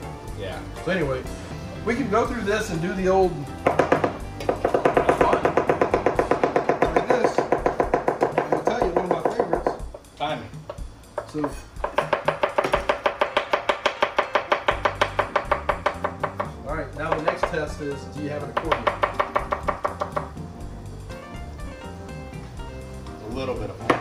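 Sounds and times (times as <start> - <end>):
knives chopping on cutting boards: 3.6 - 17.7, 18.5 - 20.4.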